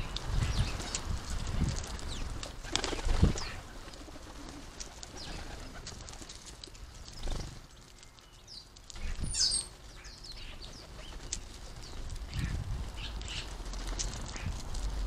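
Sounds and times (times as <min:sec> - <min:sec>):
birds chirping: 0:00.0 - 0:01.0, 0:05.1 - 0:05.7, 0:06.7 - 0:14.6
wings flapping: 0:00.5 - 0:07.7, 0:10.4 - 0:15.0.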